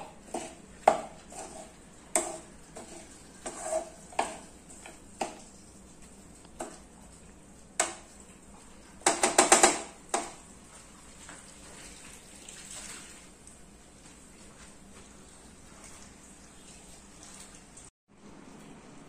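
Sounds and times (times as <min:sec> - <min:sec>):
spatula scraping metal pan: 0:00.0 - 0:05.4.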